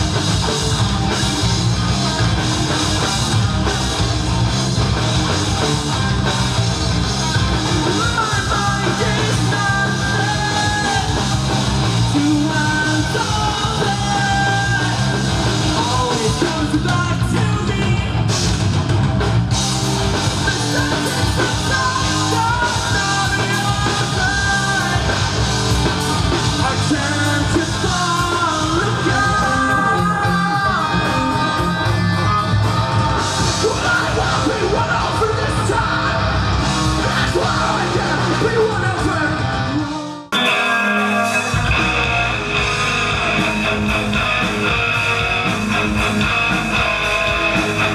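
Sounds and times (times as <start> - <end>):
bass guitar: 0.0 - 47.9
distorted electric guitars: 0.0 - 47.9
drum kit: 0.0 - 47.9
person singing and yelling: 7.8 - 18.3, 20.4 - 25.2, 26.6 - 32.5, 33.4 - 36.4, 37.0 - 42.6.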